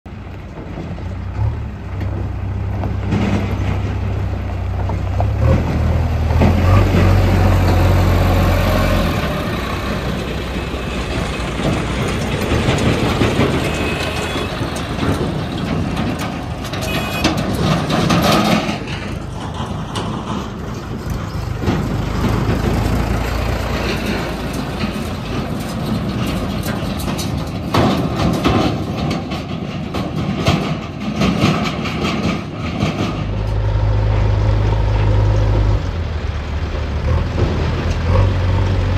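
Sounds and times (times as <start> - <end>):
diesel engines driving past: 0.1 - 38.9
trolley rattling past: 0.1 - 38.9.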